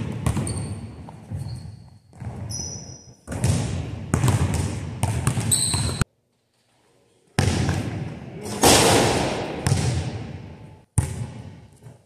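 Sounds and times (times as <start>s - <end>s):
basketballs bouncing on wooden floor: 0.0s - 6.0s, 7.4s - 8.1s, 9.4s - 11.6s
sneakers squeaking on court: 0.0s - 6.1s.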